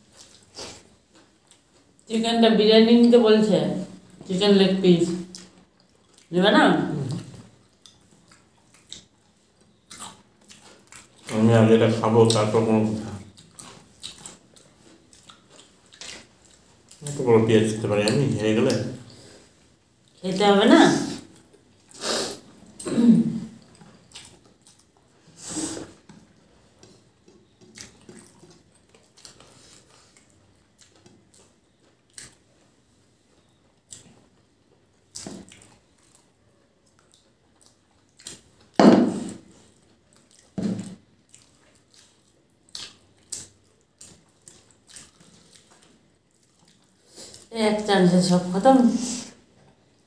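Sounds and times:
wet chewing and lip-smacking: 0.0 - 2.1, 5.1 - 6.3, 7.0 - 11.4, 12.2 - 17.2, 23.5 - 47.5.

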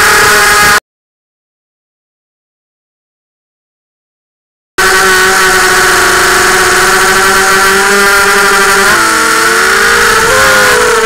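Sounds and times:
quadcopter motors whining: 0.0 - 0.8, 4.8 - 11.0.

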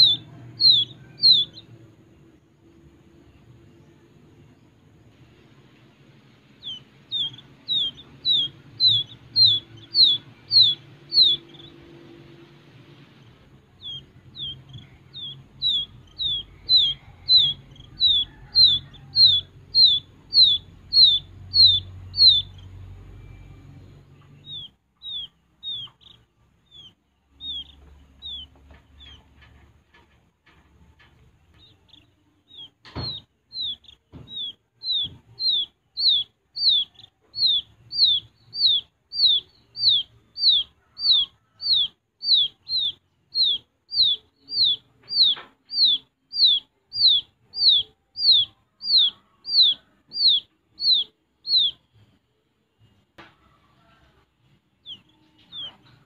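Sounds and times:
quail chicks peeping: 0.0 - 52.2, 52.8 - 56.0
sharp knock: 32.8 - 33.2.

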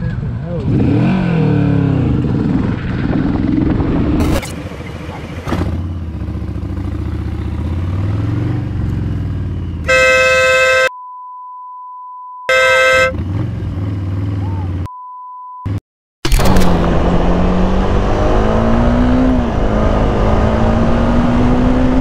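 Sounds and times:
vehicle horn blasting: 9.9 - 11.0, 12.5 - 13.2
censor bleep: 10.9 - 13.0, 14.9 - 15.8.

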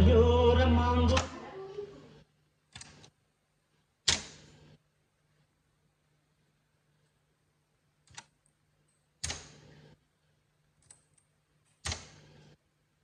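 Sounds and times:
music from tape deck: 0.0 - 1.5.

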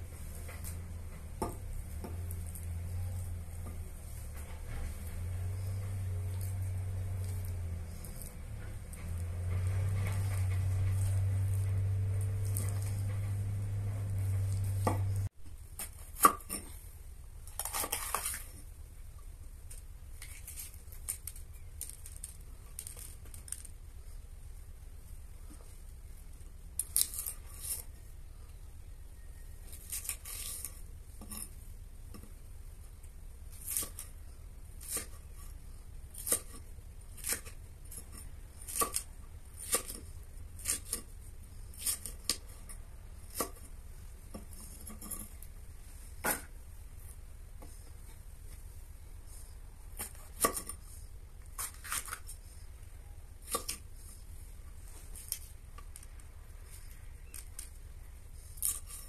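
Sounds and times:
knife chopping on wooden block: 9.0 - 16.7.

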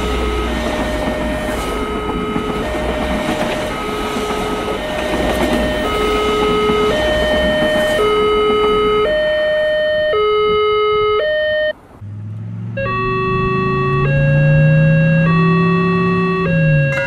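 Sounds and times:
passing train rumble: 0.0 - 9.8, 16.4 - 17.0
crossing alarm two-tone chime: 0.0 - 11.7, 12.8 - 17.0
low hum rising in pitch: 12.0 - 17.0.

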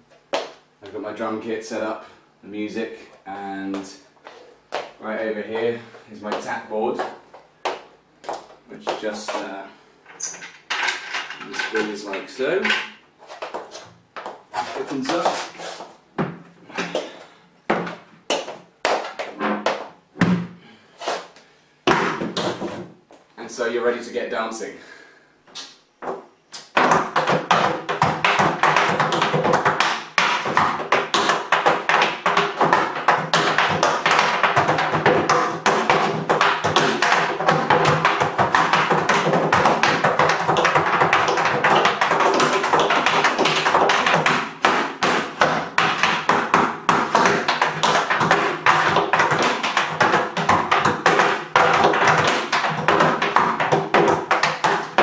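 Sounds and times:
tap shoes on tap board: 0.3 - 1.0, 6.3 - 9.5, 13.4 - 15.4, 17.7 - 20.4, 21.9 - 22.8, 25.5 - 55.0.

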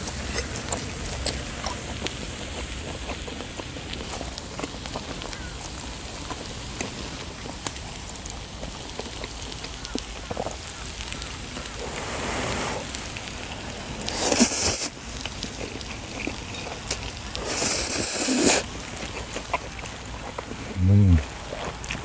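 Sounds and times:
food sizzling on griddle: 0.0 - 21.6
loud noodle slurp: 11.8 - 13.1, 14.0 - 15.0, 17.4 - 19.4.

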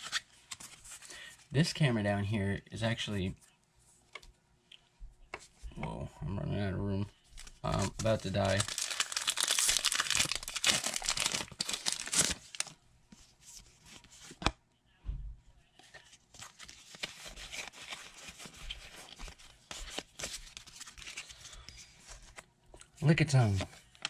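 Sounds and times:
cards rustling: 0.0 - 1.1, 7.4 - 14.5, 15.8 - 22.4, 23.3 - 24.0
foil wrapper crinkling and tearing: 7.4 - 12.8.

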